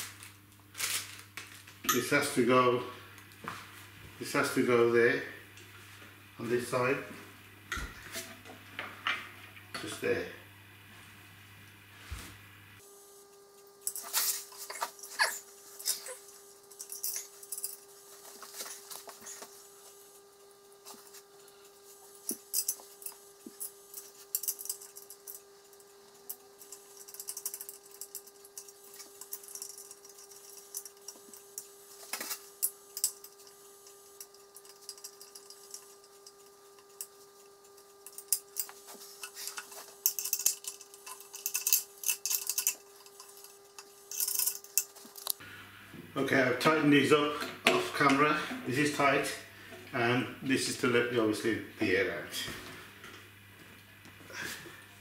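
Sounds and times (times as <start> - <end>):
faint steady hum: 0.0 - 55.0
metal hardware clicking and rattling: 26.3 - 33.6, 34.2 - 45.4.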